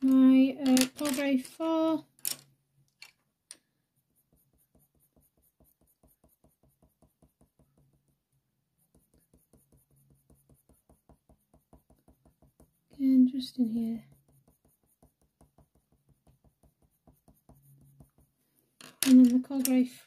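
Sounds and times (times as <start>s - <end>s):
pencil strokes on paper: 3.8s - 18.8s.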